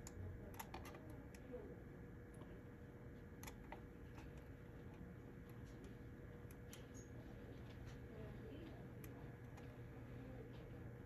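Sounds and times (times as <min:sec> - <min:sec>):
keyboard and mouse clicks: 0:03.4 - 0:04.4.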